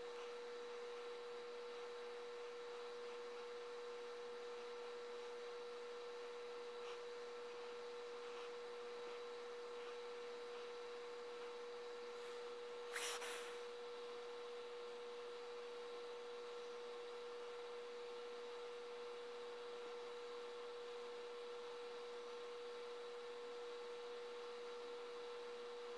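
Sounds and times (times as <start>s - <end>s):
background hiss: 12.2s - 13.7s.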